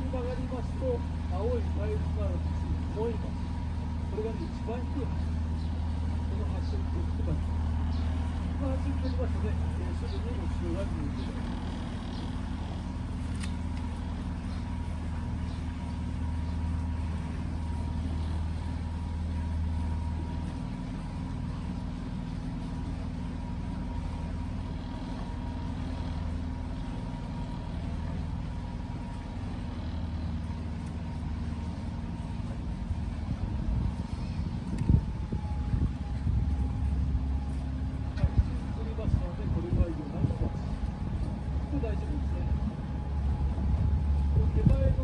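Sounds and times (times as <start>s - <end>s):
faint steady whine: 0.0s - 45.0s
outboard motor humming: 0.0s - 45.0s.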